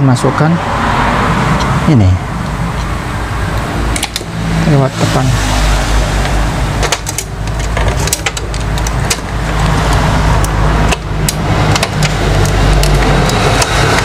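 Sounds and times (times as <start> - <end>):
road traffic rumble: 0.0 - 14.0
plastic parts clicking and tapping: 6.2 - 14.0.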